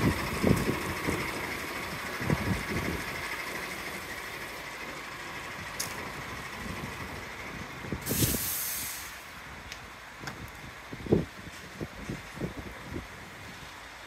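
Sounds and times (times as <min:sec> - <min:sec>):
diesel engine idling: 0:00.0 - 0:14.0
loud air hiss: 0:08.0 - 0:09.4.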